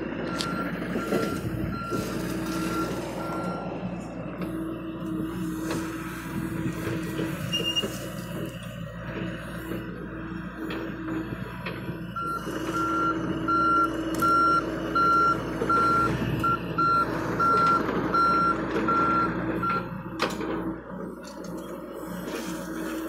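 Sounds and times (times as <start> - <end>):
diesel engine and hydraulics running: 0.0 - 23.0
excavator travel alarm beeping: 0.2 - 5.3, 7.4 - 8.1, 12.1 - 20.0.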